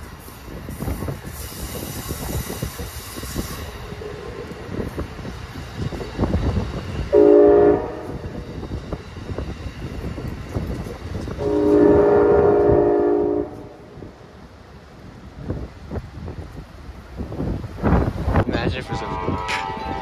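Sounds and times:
passing train rumble and clatter: 0.0s - 20.0s
multi-chime train horn: 7.2s - 8.2s, 11.4s - 13.7s, 18.8s - 20.0s.

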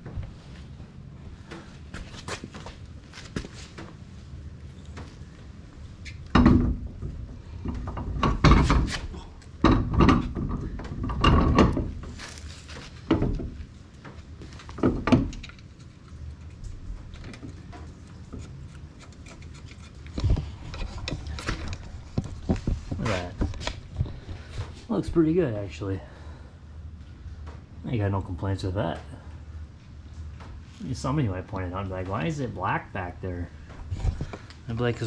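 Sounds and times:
tyre thudding and knocking: 6.3s - 13.6s.

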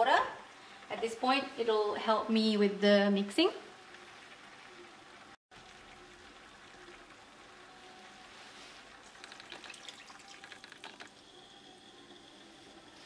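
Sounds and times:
water pouring into a pot: 3.7s - 13.0s.

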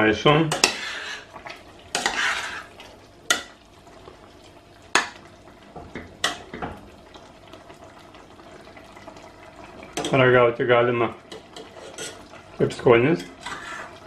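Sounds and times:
utensil scraping through stew: 0.6s - 2.9s, 11.5s - 12.3s, 13.2s - 14.0s.

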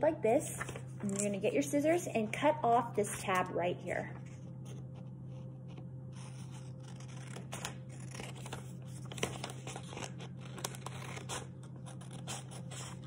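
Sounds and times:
paper rustling: 4.2s - 13.0s
scissors snipping paper: 6.2s - 13.0s.

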